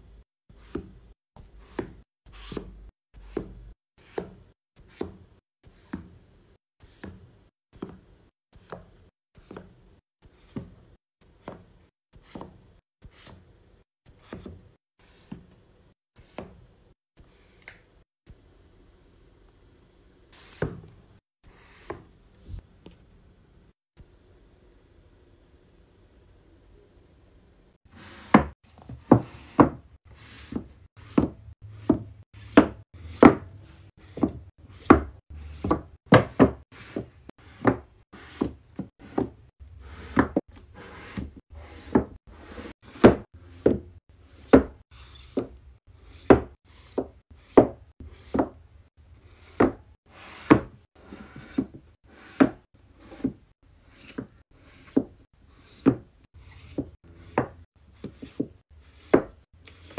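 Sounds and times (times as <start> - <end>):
books knocking on a shelf: 30.5 - 33.5, 34.1 - 39.4, 42.9 - 43.9, 50.4 - 50.8.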